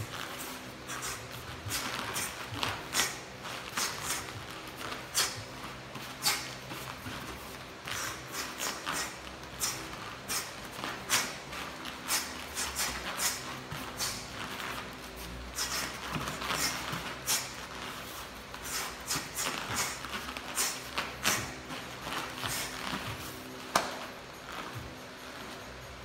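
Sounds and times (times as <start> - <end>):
feet moving on gym mat: 0.0 - 26.0
quick sharp exhalations: 15.6 - 16.0.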